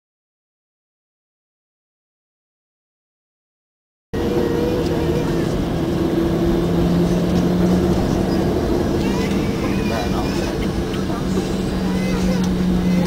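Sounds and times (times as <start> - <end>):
jet engines humming in cabin: 4.2 - 13.0.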